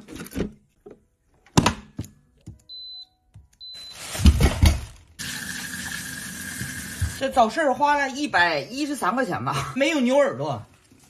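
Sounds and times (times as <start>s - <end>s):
appliance touch panel beeps: 2.6s - 4.0s.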